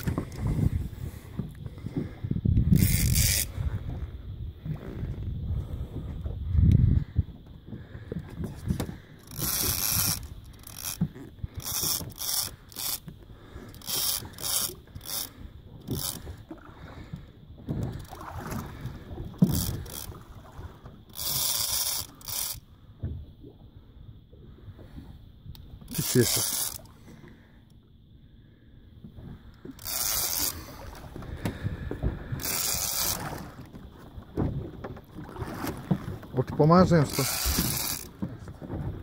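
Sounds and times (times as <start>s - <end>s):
fishing reel drag hissing: 2.6s - 4.1s, 8.8s - 17.2s, 17.8s - 22.7s, 25.6s - 27.7s, 29.5s - 33.7s, 36.8s - 38.1s.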